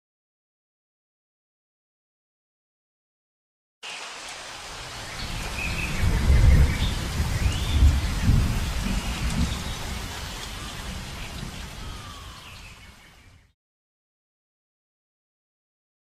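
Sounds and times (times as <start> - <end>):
steady rain: 3.8 - 13.6
rolling thunder: 5.2 - 12.4.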